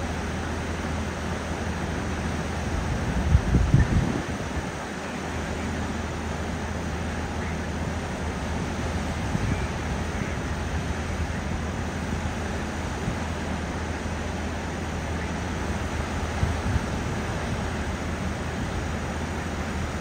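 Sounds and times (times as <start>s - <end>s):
river rapids rushing: 4.2s - 20.0s.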